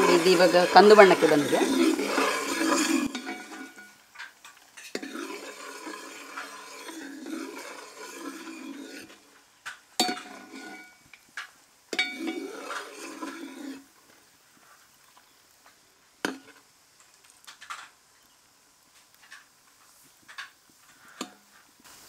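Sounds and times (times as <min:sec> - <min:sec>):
ladle scraping bubbling mixture: 0:00.0 - 0:14.0.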